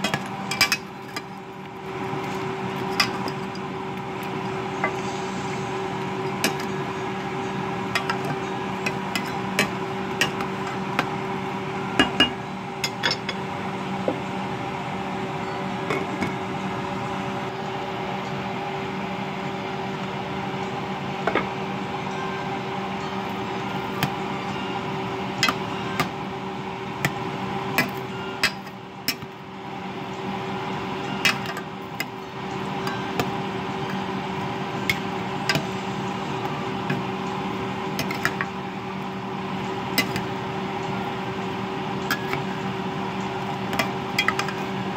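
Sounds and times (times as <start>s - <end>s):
steady hum: 0.0s - 44.9s
metal spoon clinking against pot: 43.7s - 44.7s.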